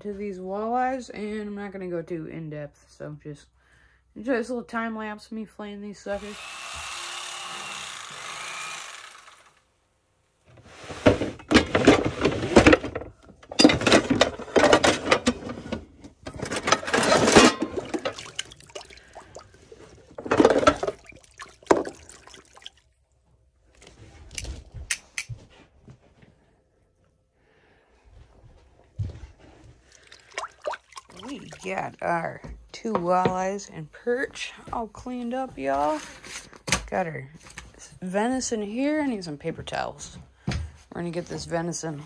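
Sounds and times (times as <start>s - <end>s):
electric knife buzzing: 6.2s - 9.6s
pots and pans clattering: 10.9s - 18.4s, 20.1s - 21.1s.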